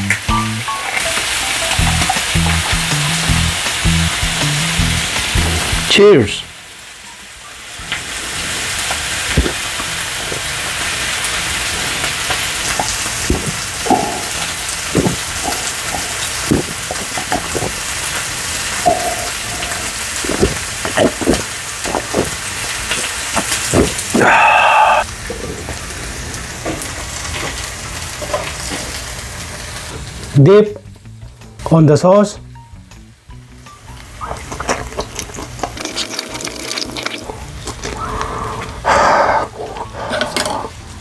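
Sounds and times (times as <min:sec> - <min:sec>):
steaks sizzling on a griddle: 0:07.6 - 0:24.1, 0:24.9 - 0:30.3
person gulping beer: 0:23.8 - 0:25.5, 0:34.6 - 0:40.6.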